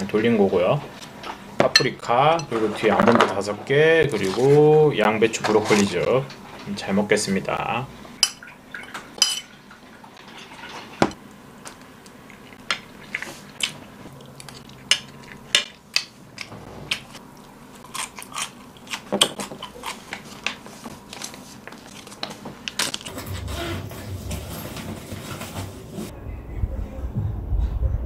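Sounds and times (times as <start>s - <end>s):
utensils clinking on ceramic bowls: 8.2s - 9.6s
close-up chewing: 12.1s - 15.5s, 16.3s - 23.1s.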